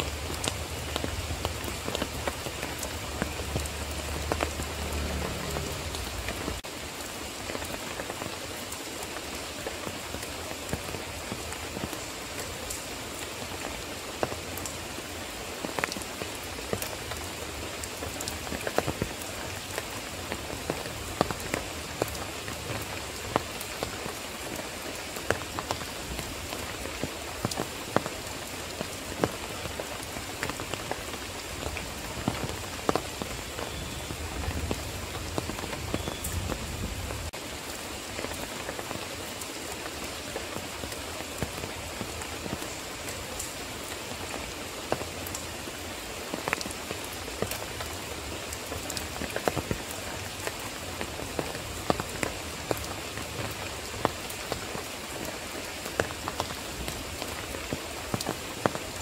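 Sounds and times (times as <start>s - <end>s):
rain drops striking: 0.0s - 59.0s.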